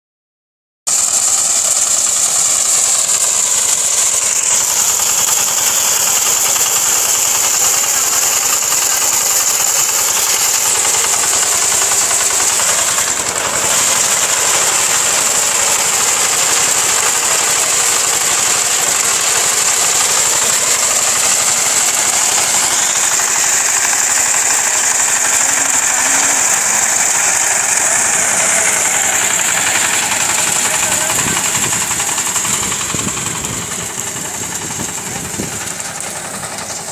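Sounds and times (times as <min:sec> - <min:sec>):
diesel engine knocking: 0:00.9 - 0:36.9.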